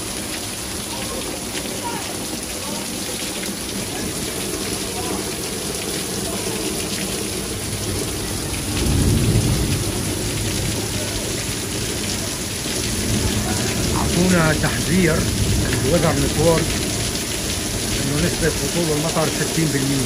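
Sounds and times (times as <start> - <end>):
heavy rain pouring: 0.0 - 20.0
low rumble of thunder: 7.6 - 18.0.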